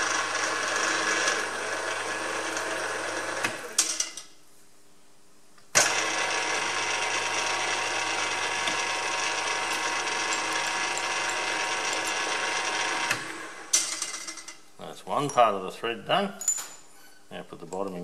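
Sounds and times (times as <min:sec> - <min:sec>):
milling machine whirring: 0:00.0 - 0:03.8, 0:05.8 - 0:13.8.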